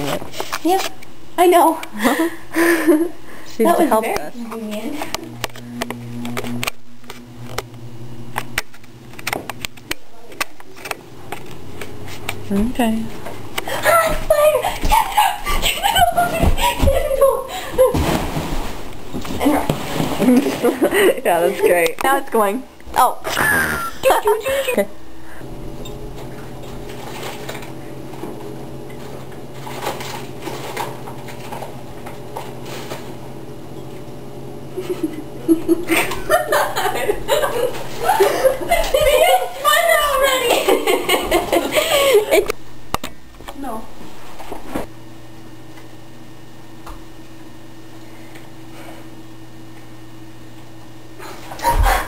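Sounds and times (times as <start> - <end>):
low mechanical hum: 0.0 - 52.0.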